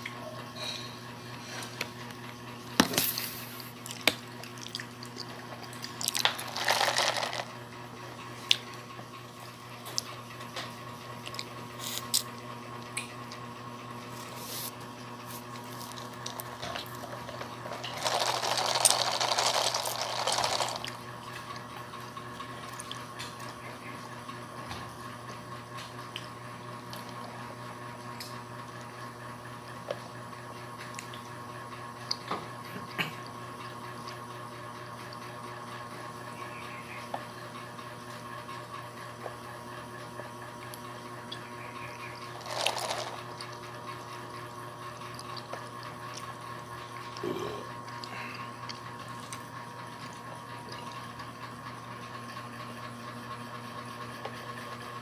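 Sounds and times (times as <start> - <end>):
steady background hum: 0.0 - 55.0
slurping through a straw: 17.6 - 21.0, 42.3 - 43.4.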